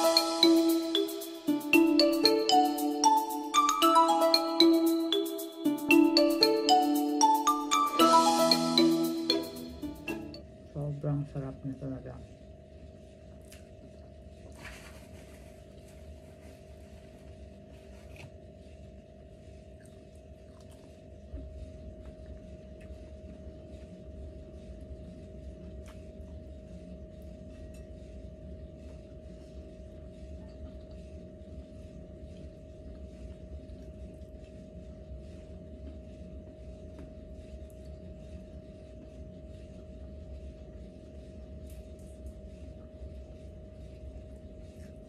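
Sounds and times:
steady low hum: 0.0s - 45.0s
clicks and smacks of eating: 13.3s - 14.1s, 19.8s - 23.4s, 25.7s - 26.3s.

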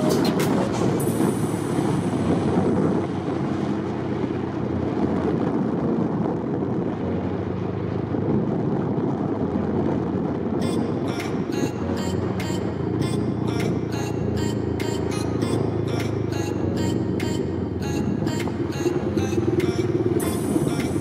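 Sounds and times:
vehicle engine and road noise: 0.0s - 21.0s
music with sharp beats: 19.6s - 21.0s.

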